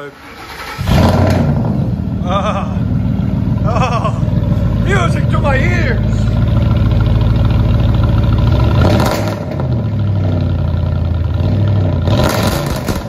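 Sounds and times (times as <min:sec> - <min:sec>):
truck engine idling and revving: 0:00.0 - 0:13.0.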